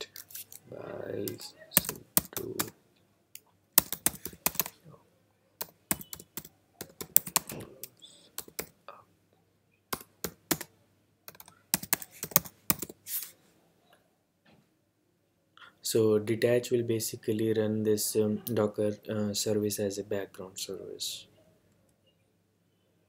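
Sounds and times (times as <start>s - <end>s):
computer keyboard typing: 1.2s - 2.7s, 3.8s - 4.7s, 5.6s - 8.7s, 9.9s - 10.7s, 11.3s - 13.0s.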